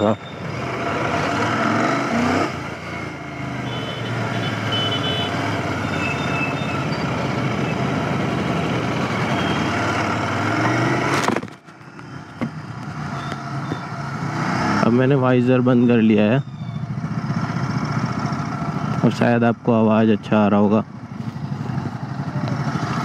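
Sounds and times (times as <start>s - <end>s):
wind and road noise: 0.0s - 16.0s, 16.6s - 23.0s
motorcycle engine running: 16.4s - 19.4s, 20.8s - 23.0s.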